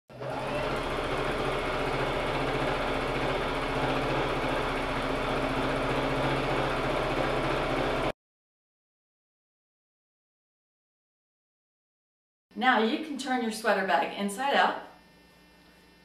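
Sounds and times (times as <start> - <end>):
sewing machine stitching: 0.1 - 8.1.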